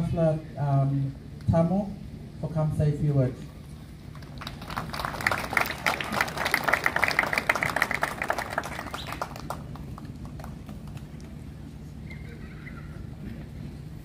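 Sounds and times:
audience clapping: 4.1s - 11.4s.

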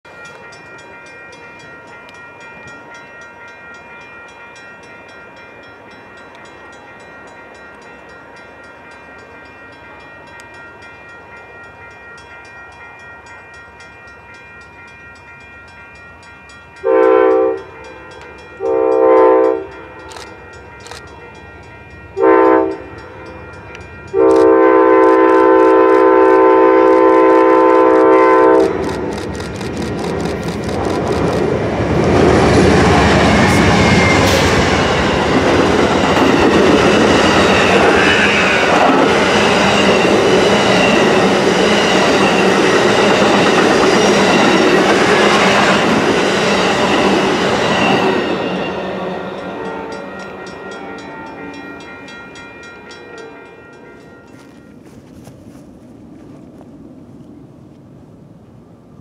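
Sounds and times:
passenger train rumble: 0.1s - 59.0s
locomotive air horn blasts: 16.8s - 18.0s, 18.6s - 19.9s, 22.2s - 22.9s, 24.2s - 28.8s.

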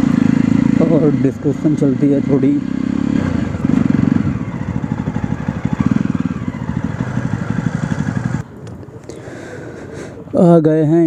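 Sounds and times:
motorcycle engine running slowly: 0.0s - 8.8s.

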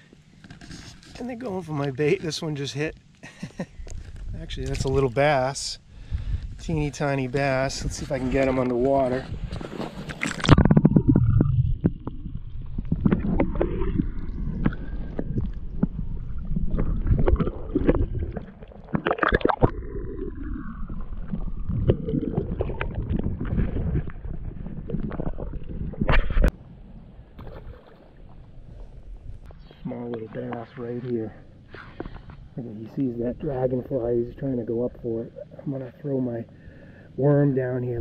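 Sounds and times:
underwater water sloshing and gurgling: 7.2s - 37.1s
low underwater rumble: 9.2s - 29.6s.

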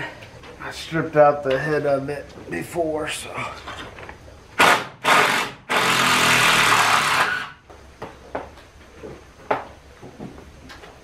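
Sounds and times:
power tool cutting screw: 4.6s - 7.6s.

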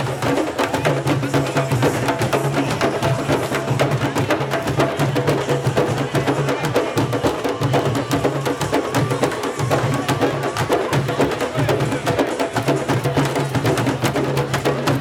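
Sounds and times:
drum group playing: 0.0s - 15.0s.

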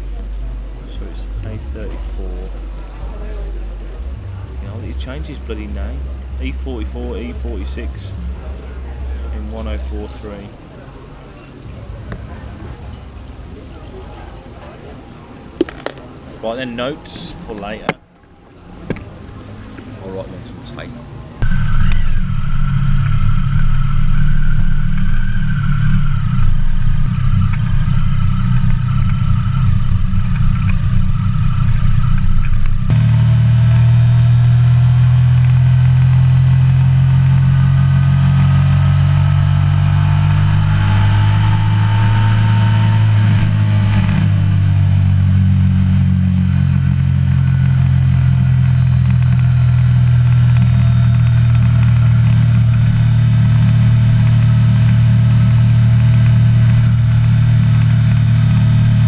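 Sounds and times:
motorcycle engine running: 15.6s - 16.1s, 21.4s - 59.0s.

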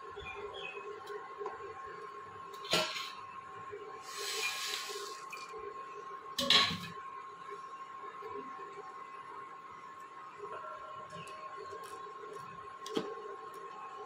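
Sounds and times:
thin steady whine: 0.0s - 14.0s
water boiling in a pot: 0.0s - 14.0s
brief hiss: 4.0s - 5.2s.

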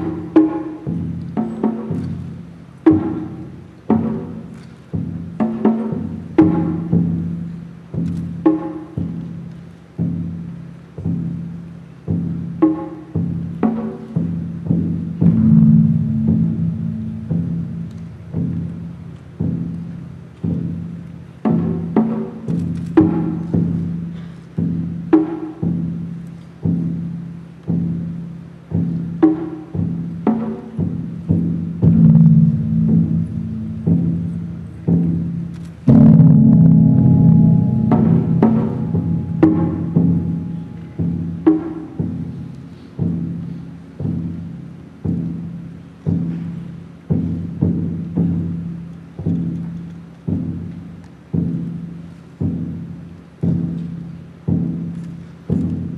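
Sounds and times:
barrel drums struck: 15.2s - 18.8s, 31.8s - 42.2s
steady low ringing tone: 15.2s - 19.4s, 31.8s - 42.6s
gongs struck with mallets: 15.2s - 19.6s, 31.8s - 42.5s.

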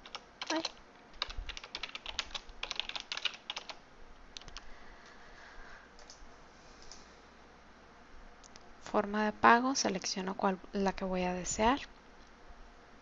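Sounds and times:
typing on computer keyboard: 0.0s - 3.8s, 4.4s - 4.6s.

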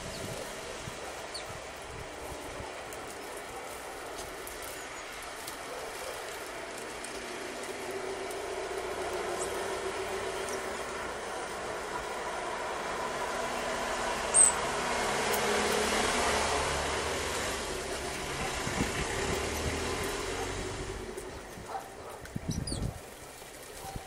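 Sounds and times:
motor vehicle passing: 0.0s - 24.0s
high bird chirp: 14.3s - 14.6s, 22.4s - 23.0s.

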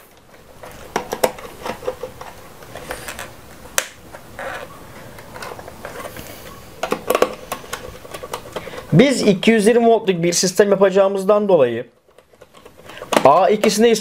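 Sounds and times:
small clicks and scrapes: 0.0s - 3.4s, 4.1s - 8.9s, 12.0s - 13.3s.

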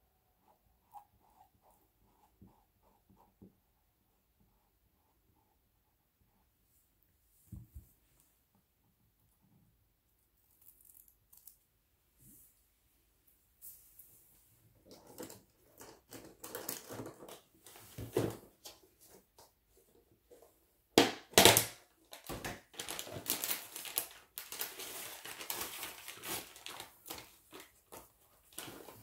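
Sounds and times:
material crinkling and rustling: 21.4s - 29.0s.

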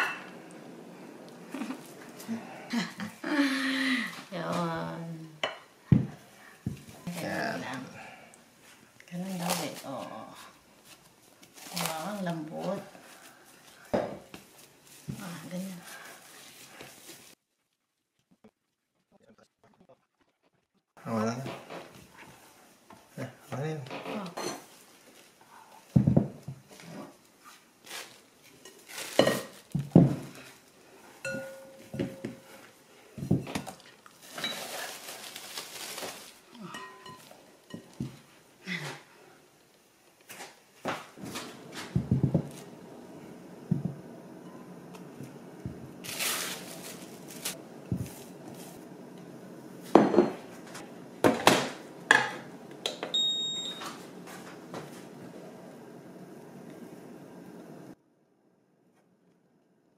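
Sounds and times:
plastic cling wrap crinkling: 10.8s - 17.4s, 27.5s - 30.8s, 33.6s - 36.6s, 45.9s - 48.8s
objects knocking on counter: 26.0s - 26.6s, 29.8s - 30.3s, 41.9s - 42.6s, 43.7s - 44.0s
glass bowls knocking on mat: 31.3s - 32.5s, 43.7s - 44.0s.

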